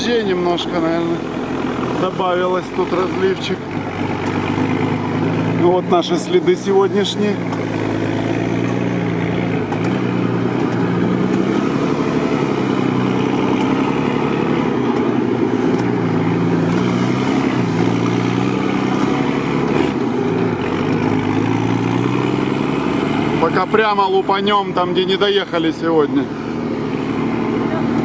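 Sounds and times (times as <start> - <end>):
truck engine droning: 0.0 - 28.0.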